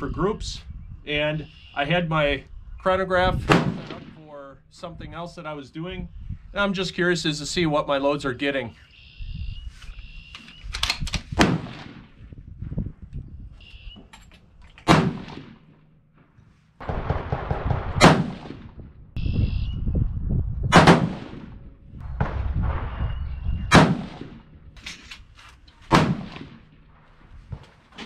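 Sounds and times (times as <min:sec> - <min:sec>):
rifle shots: 0:03.5 - 0:04.3, 0:11.3 - 0:12.2, 0:14.8 - 0:15.8, 0:16.8 - 0:18.9, 0:20.7 - 0:25.2, 0:25.8 - 0:27.2.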